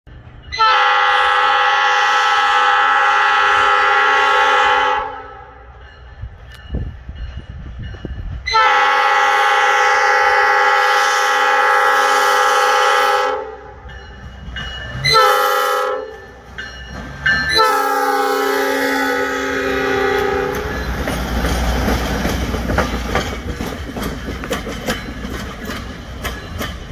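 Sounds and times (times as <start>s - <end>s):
train air horn blasts: 0.5s - 5.7s, 8.4s - 13.8s, 15.0s - 16.4s, 17.5s - 20.8s.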